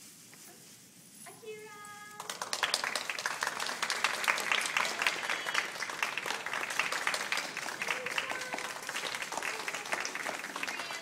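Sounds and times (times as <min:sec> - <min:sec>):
audience applauding: 0:02.2 - 0:11.0.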